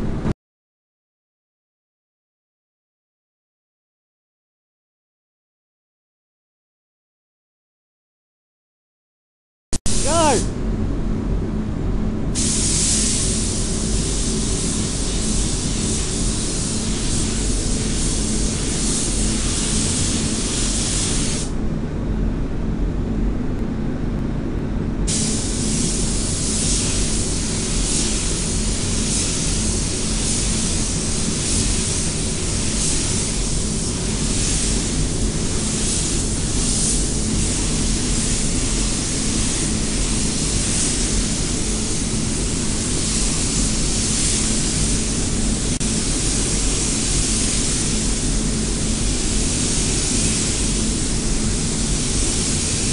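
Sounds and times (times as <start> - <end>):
steady low hum: 0.0 - 0.3, 9.8 - 52.9
spray gun hissing: 12.4 - 21.5, 25.1 - 52.9.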